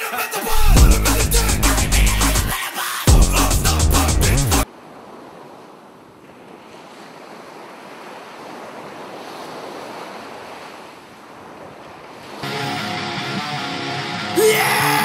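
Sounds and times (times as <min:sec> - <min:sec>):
music: 0:00.6 - 0:04.6, 0:12.4 - 0:15.0
sea surf: 0:01.9 - 0:15.0
wind: 0:04.6 - 0:13.8.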